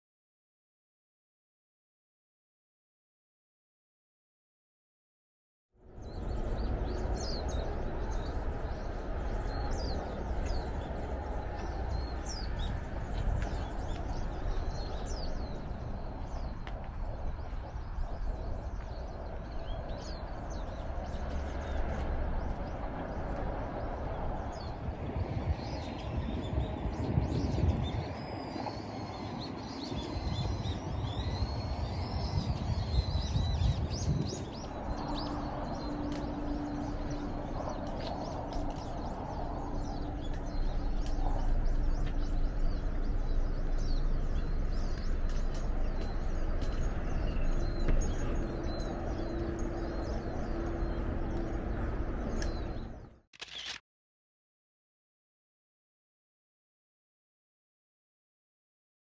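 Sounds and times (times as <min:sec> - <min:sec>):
low rumble of background noise: 0:05.8 - 0:53.0
small birds chirping: 0:05.8 - 0:53.8.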